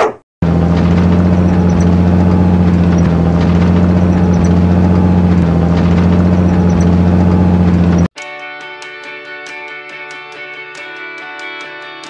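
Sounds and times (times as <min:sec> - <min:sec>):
vehicle engine humming: 0:00.4 - 0:08.1.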